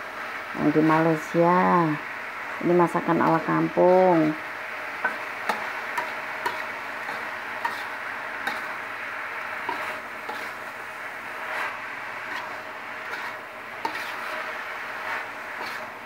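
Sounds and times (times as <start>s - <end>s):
spatula scraping in a wok: 0.0s - 16.0s
steady hiss: 0.0s - 16.0s
spatula clicking on pan: 5.0s - 7.8s.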